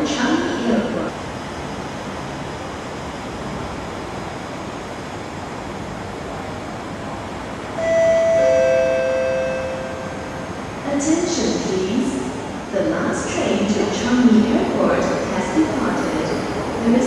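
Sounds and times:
stopped train humming: 0.0 - 17.0
two-note descending chime: 7.8 - 10.4.

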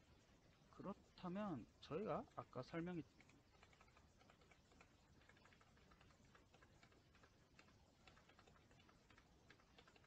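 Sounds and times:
keyboard and mouse clicks: 3.1 - 10.0.

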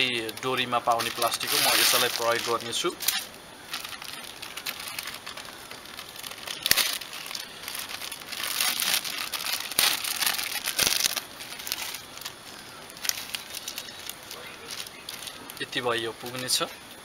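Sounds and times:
plastic bag crinkling: 0.0 - 16.7.

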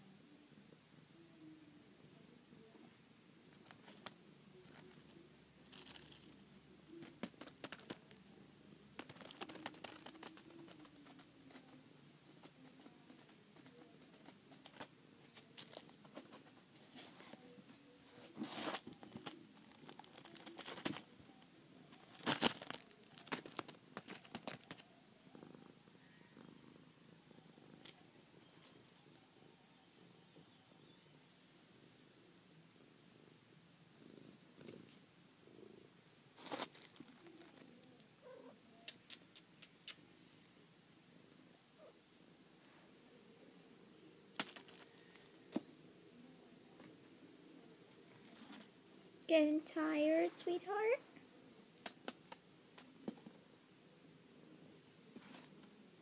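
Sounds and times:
kitten scuffling on carpet: 18.1 - 19.0.

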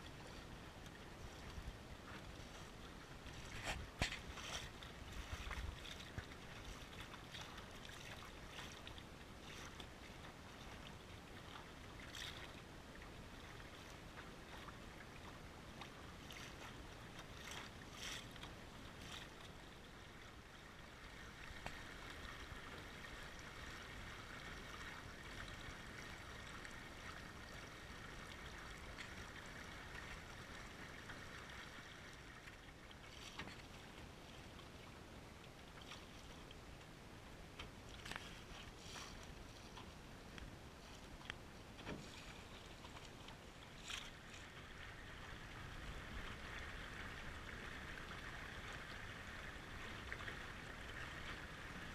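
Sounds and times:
water hissing along a boat hull: 38.0 - 40.0.

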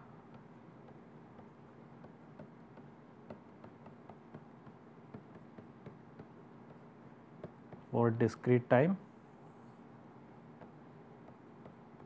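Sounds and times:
stylus tapping on tablet screen: 0.2 - 7.9, 10.5 - 12.0.

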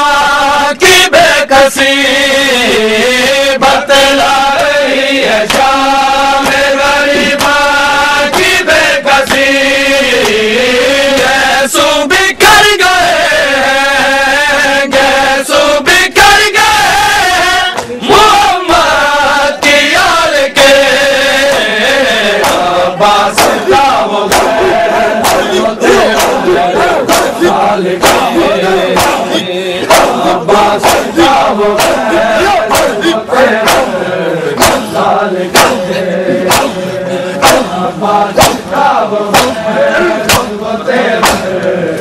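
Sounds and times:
men chanting in unison: 0.0 - 42.0
chest-beating slaps: 5.4 - 5.8, 6.4 - 7.6, 8.2 - 9.5, 10.2 - 10.4, 17.7 - 18.0, 21.4 - 40.6, 41.2 - 41.8.

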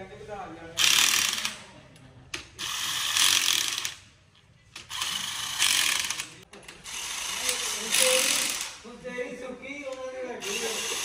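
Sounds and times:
workshop tool working on metal: 0.8 - 1.7, 2.3 - 8.9, 9.9 - 11.0.

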